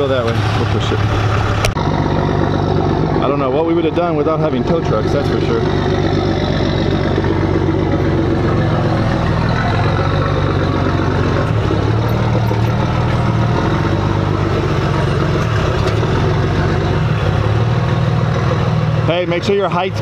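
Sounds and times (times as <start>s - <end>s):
vehicle engine running: 0.0s - 20.0s.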